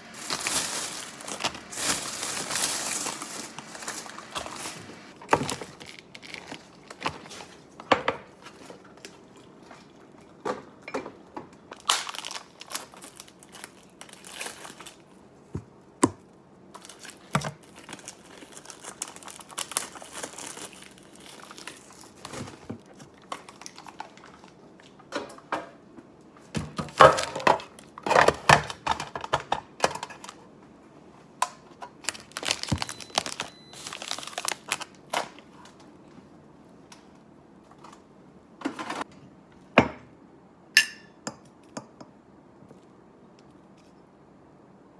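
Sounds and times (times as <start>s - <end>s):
plastic bags crinkling and rustling: 0.0s - 10.0s, 11.6s - 15.7s, 16.7s - 25.1s, 31.6s - 36.1s.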